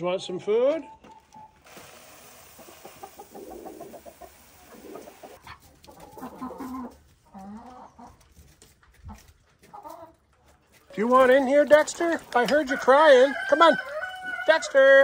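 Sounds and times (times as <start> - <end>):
chicken feed pouring into feeder: 1.7 - 6.4
hens clucking: 2.4 - 14.9.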